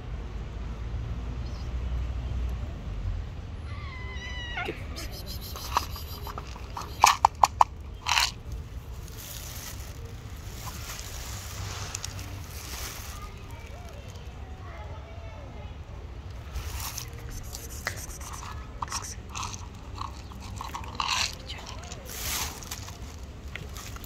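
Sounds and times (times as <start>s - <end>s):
cat meowing: 3.6s - 7.0s
kibble poured onto stone: 16.5s - 24.0s.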